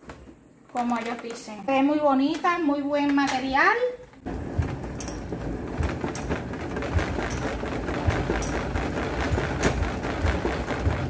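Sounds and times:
washer basket rattling whir: 2.9 - 11.0.

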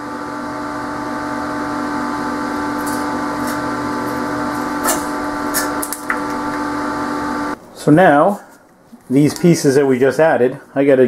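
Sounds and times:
steady machine hum: 0.0 - 8.9
slag cracking off weld: 2.7 - 6.7.

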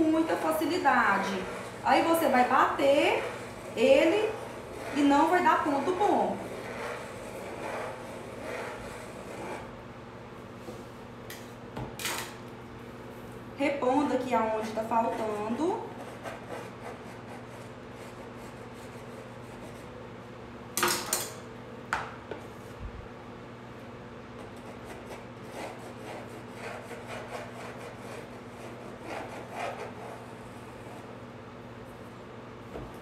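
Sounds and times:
spatula scraping cream: 0.0 - 9.8, 14.7 - 20.0, 24.4 - 31.2
steady low hum: 0.0 - 33.0.

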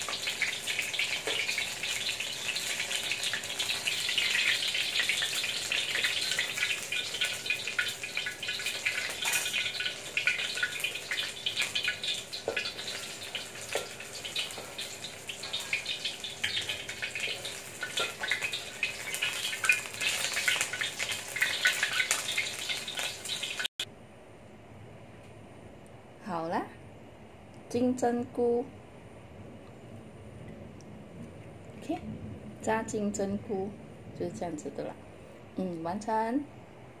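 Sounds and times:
food deep-frying in oil: 0.0 - 23.9.

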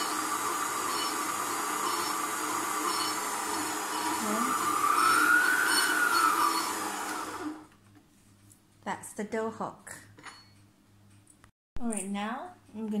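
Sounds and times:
stand mixer motor whining: 0.0 - 7.7.

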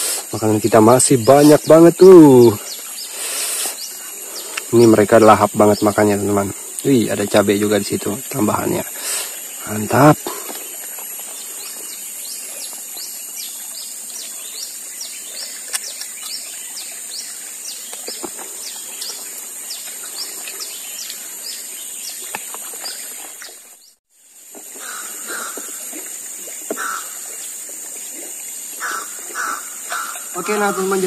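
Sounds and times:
high-pitched insect drone: 0.0 - 15.7
bird chirping: 0.4 - 24.0
lower bird calls: 24.7 - 26.0, 26.6 - 31.0.

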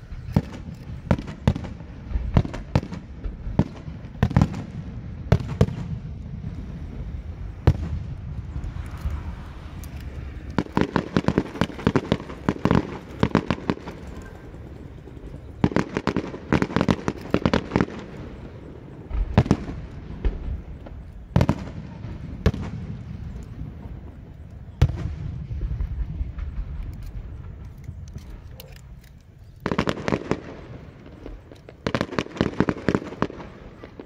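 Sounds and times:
fireworks shells bursting: 0.0 - 6.6, 7.4 - 34.0
distant fireworks crackling: 0.0 - 34.0.

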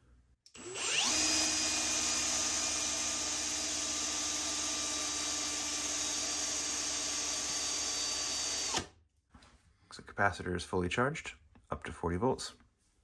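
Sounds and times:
cordless drill whining: 0.5 - 8.9.

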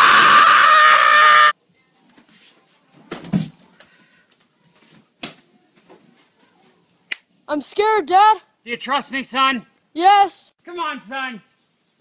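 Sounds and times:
harsh distorted cry: 0.0 - 1.6.

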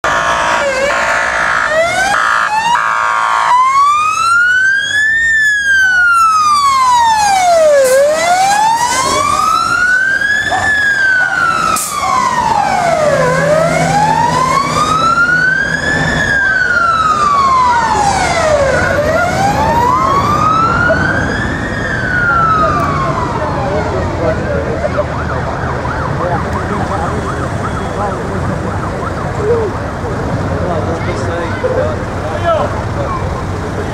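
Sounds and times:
truck bullhorn blast: 0.0 - 1.6
fire engine siren wailing: 0.0 - 33.9.

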